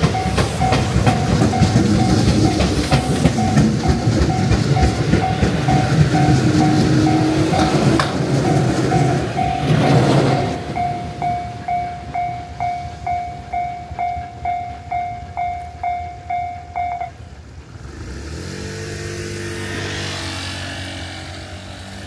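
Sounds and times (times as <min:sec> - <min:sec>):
level crossing warning bell: 0:00.0 - 0:17.4
passing train rumble: 0:00.0 - 0:22.0
road vehicle engine: 0:00.0 - 0:22.0.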